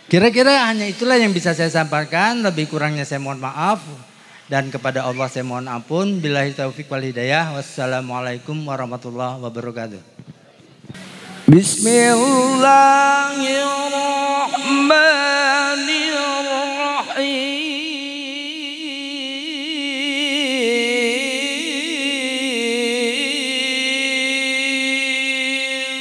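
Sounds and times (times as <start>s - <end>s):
person reciting melodically: 0.0s - 10.1s, 11.5s - 26.0s
short breaths: 4.1s - 4.5s.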